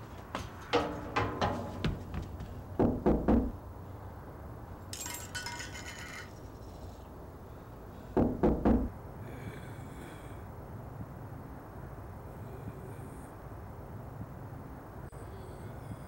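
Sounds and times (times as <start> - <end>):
knocking on a door: 0.7 - 3.6, 8.2 - 8.9.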